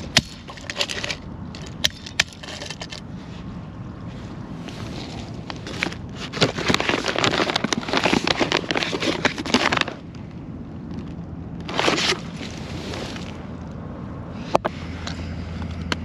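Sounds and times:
paper bag crinkling and rustling: 0:04.7 - 0:10.1, 0:11.6 - 0:13.4.

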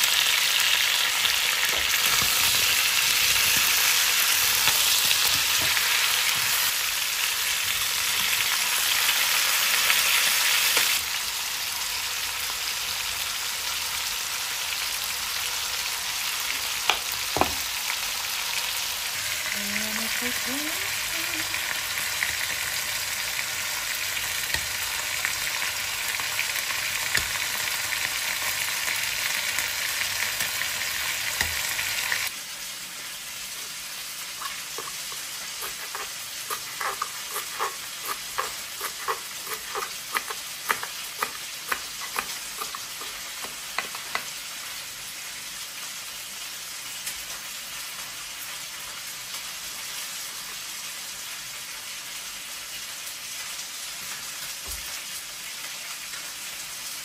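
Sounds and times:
sizzling hiss while stirring: 0:00.0 - 0:57.0
knife chopping on cutting board: 0:35.6 - 0:44.2.

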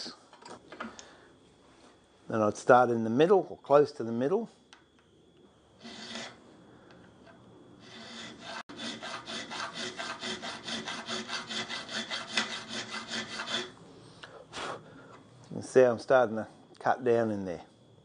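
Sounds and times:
file scraping steel bolt: 0:07.9 - 0:13.7.

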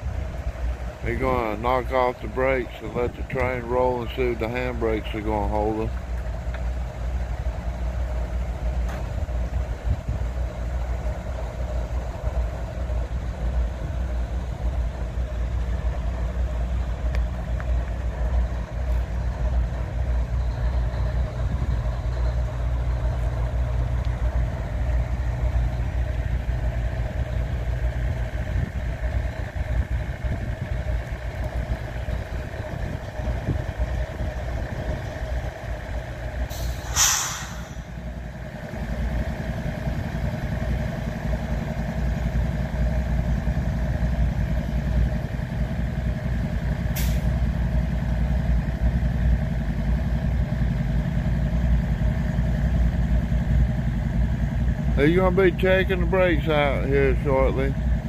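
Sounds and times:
diesel locomotives idling: 0:00.0 - 0:58.0
air brake hiss: 0:36.5 - 0:38.0, 0:46.9 - 0:47.4.

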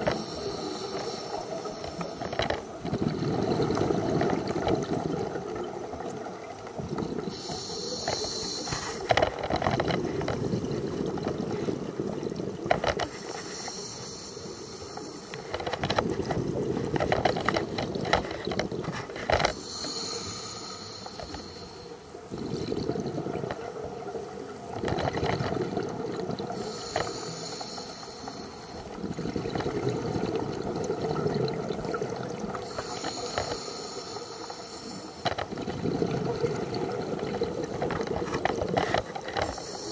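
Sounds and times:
regulator hiss on inhale: 0:00.0 - 0:02.8, 0:07.3 - 0:09.4, 0:13.0 - 0:15.8, 0:19.4 - 0:22.2, 0:26.5 - 0:29.0, 0:29.7 - 0:35.5, 0:39.4 - 0:39.9
bubbly rumble of exhaled air: 0:01.6 - 0:08.1, 0:22.2 - 0:24.0, 0:28.8 - 0:33.4, 0:35.2 - 0:39.9.

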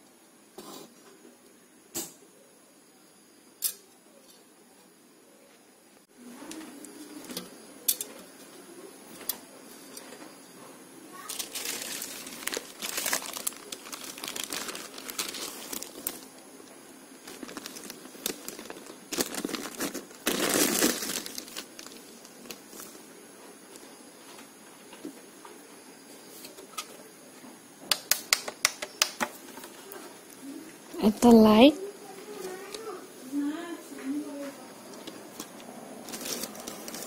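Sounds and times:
tracing paper crinkling: 0:11.2 - 0:23.0, 0:35.3 - 0:37.0.

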